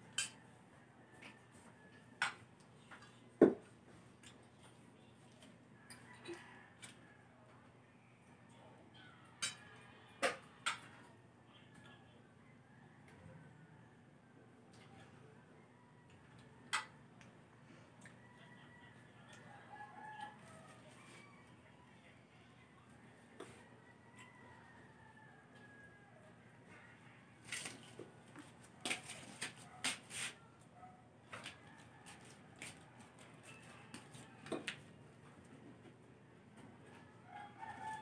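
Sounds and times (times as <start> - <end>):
faint clicks and taps of eating: 2.2 - 3.2, 4.2 - 7.0.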